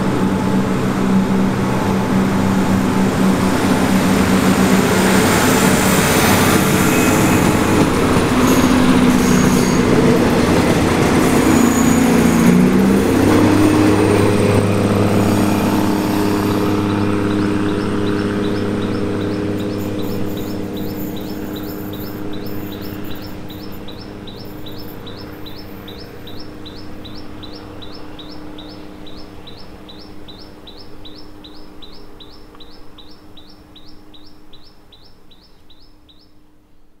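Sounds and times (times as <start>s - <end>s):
diesel railcar engine hum: 0.0s - 36.1s
high repeating chirp: 13.4s - 29.6s.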